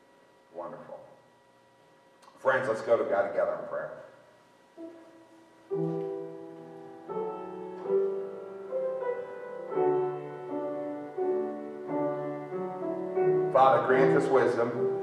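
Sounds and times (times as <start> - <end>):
person speaking a prayer: 2.4 - 4.1, 13.5 - 14.9
piano playing slow chords: 4.8 - 15.0.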